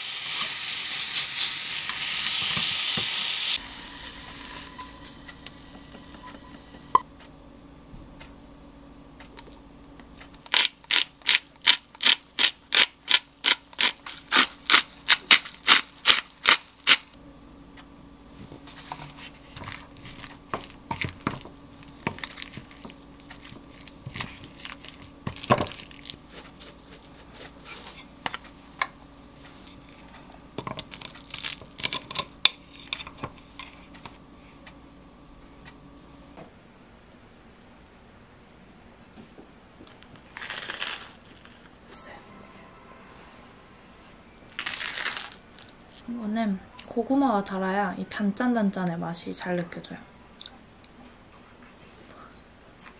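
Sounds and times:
pepper mill grinding clicks: 10.3s - 17.2s.

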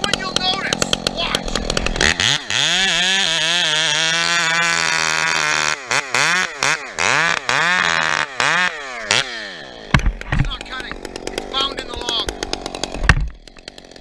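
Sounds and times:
chainsaw cutting log: 0.0s - 14.0s.

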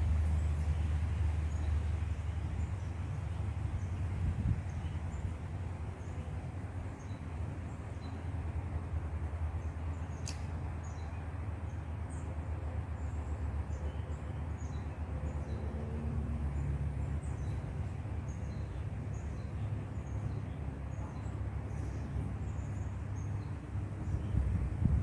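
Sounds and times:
steady low rumble: 16.2s - 25.0s.

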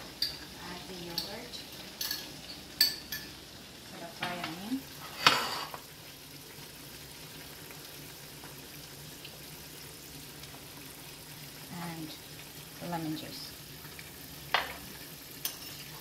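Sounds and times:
metal spoon clinking on cookware: 0.2s - 0.5s, 1.1s - 3.4s, 15.4s - 15.9s.

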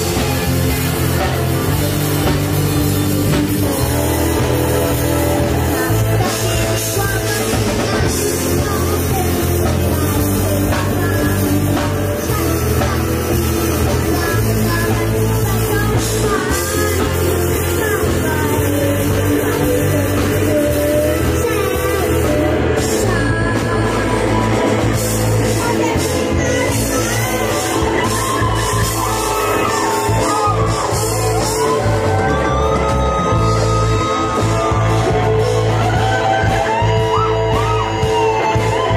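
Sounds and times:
rock band playing: 0.0s - 38.9s
boy singing: 3.6s - 31.8s.

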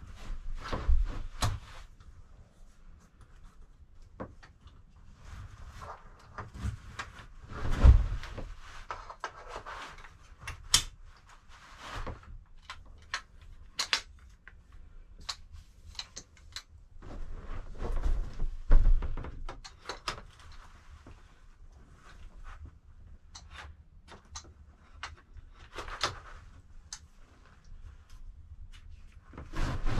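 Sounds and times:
fabric rustling: 5.1s - 10.3s, 28.8s - 29.9s.

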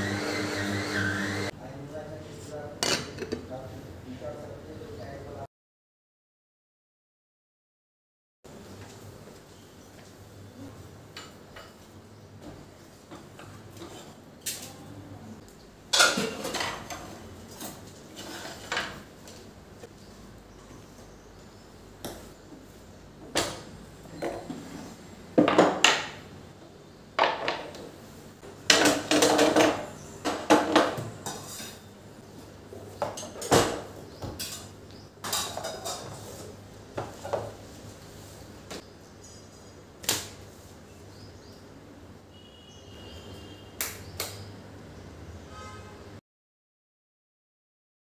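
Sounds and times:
kitchen items clinking on stone counter: 15.9s - 19.1s, 28.7s - 31.9s, 33.0s - 36.4s.

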